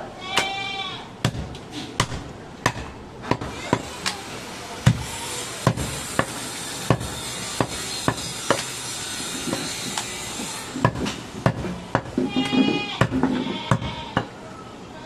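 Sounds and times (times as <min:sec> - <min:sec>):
cleaver chopping on wooden block: 0:01.2 - 0:04.2, 0:04.8 - 0:08.7, 0:09.4 - 0:10.1, 0:10.8 - 0:14.3.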